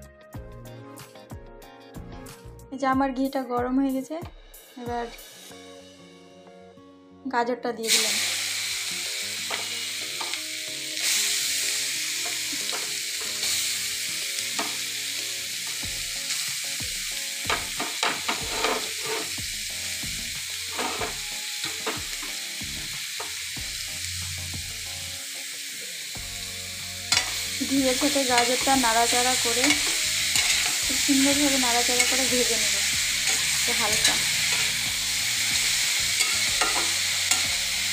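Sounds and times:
carrots sizzling in a pan: 7.8s - 37.9s.

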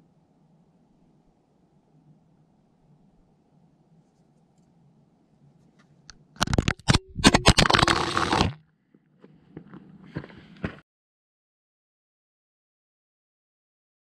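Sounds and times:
camera scraping and knocking on rock: 5.8s - 8.6s, 9.2s - 10.8s.

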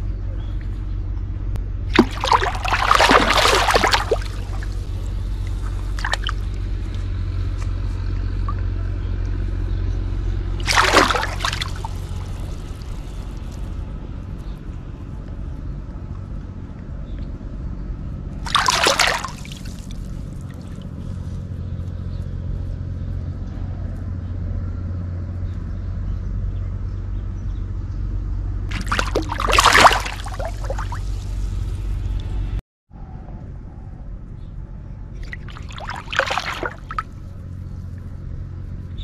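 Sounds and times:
steady low hum: 0.0s - 24.6s, 28.6s - 39.0s
fish splashing in water: 1.9s - 6.8s, 10.5s - 13.7s, 18.4s - 21.0s, 28.7s - 31.8s, 35.2s - 37.2s.

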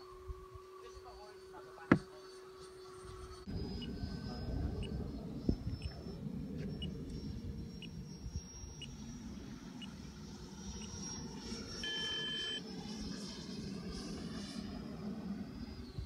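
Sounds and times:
model jet whine: 0.0s - 16.0s
short electronic beep: 11.8s - 12.6s.

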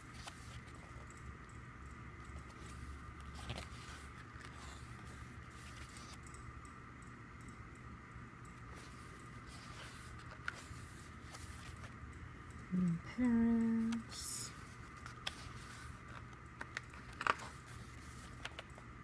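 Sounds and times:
paper pages rustling: 0.0s - 1.0s, 2.4s - 6.2s, 8.7s - 11.9s, 14.6s - 18.8s.

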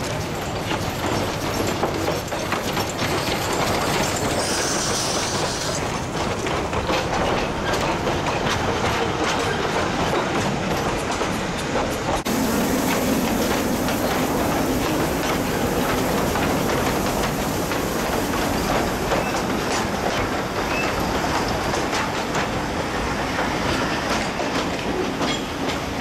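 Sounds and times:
steam hissing: 0.0s - 7.2s, 12.2s - 26.0s
steam locomotive passing: 0.0s - 26.0s
wheels clicking over rail joints: 0.0s - 26.0s.

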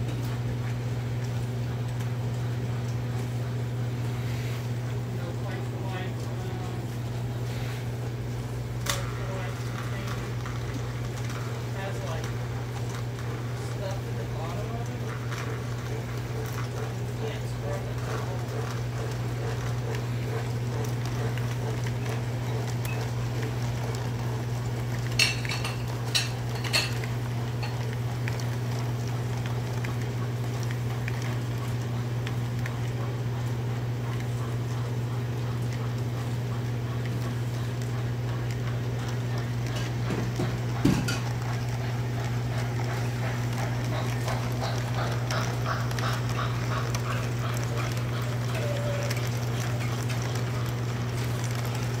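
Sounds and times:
model train electric hum: 8.7s - 24.8s.

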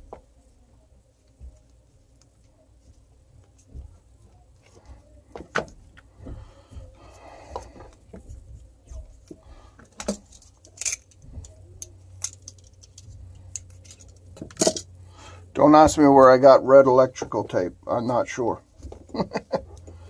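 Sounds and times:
crackly handling noise: 0.0s - 16.1s
faint low hum: 0.0s - 20.0s
handling clicks and rattles: 9.2s - 14.9s.

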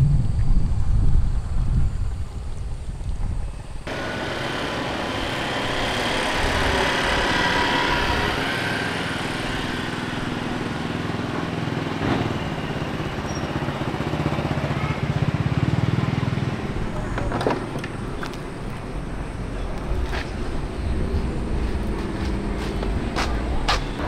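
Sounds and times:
low rumble: 0.0s - 3.8s
motorbike engines passing: 3.9s - 24.0s.

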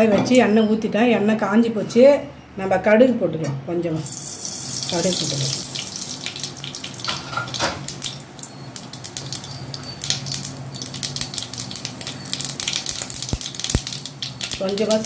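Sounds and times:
seeds sizzling in hot oil: 4.0s - 15.0s
crackles and pops: 7.8s - 15.0s.

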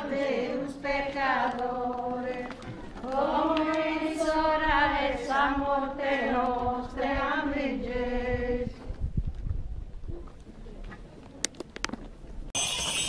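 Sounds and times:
group singing a hymn: 0.0s - 8.9s.

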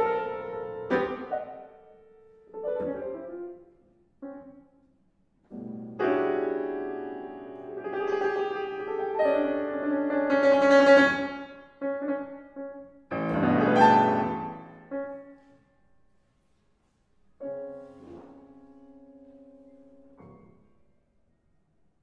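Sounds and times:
solo piano chords: 0.0s - 15.5s.

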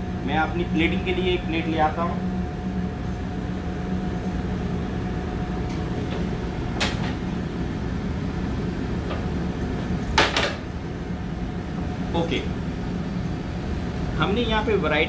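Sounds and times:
kitchen ventilation hum: 0.0s - 15.0s.

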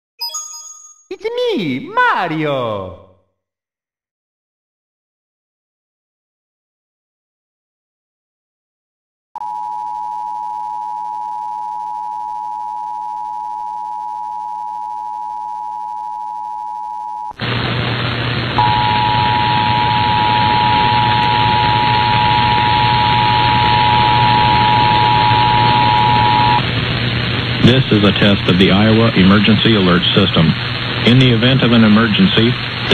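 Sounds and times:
radio static hiss and hum: 17.4s - 32.9s.

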